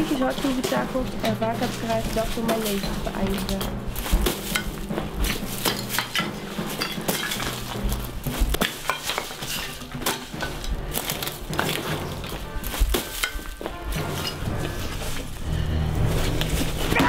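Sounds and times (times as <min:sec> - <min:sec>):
faint low drone: 0:14.2 - 0:17.0.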